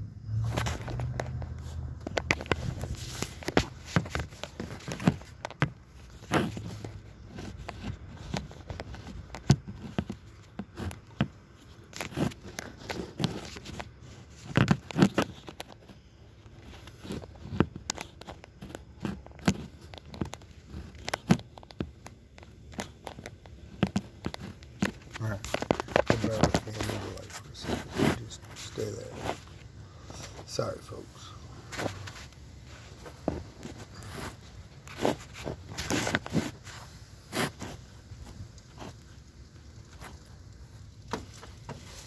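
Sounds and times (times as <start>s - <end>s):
sharp clicks and thumps: 0.3s - 31.0s
hands handling phone: 0.6s - 40.2s.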